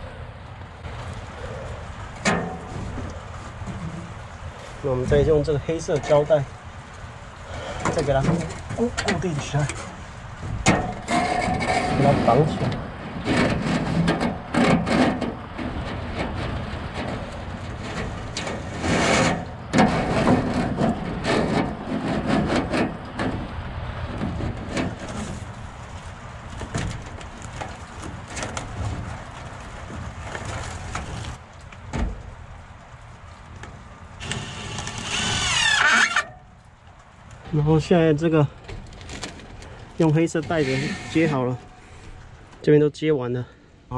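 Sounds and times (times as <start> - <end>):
rustling and rubbing: 0.8 - 37.9, 38.6 - 42.5
tape pulled from roll: 13.2 - 23.4, 24.2 - 31.8, 34.2 - 36.4.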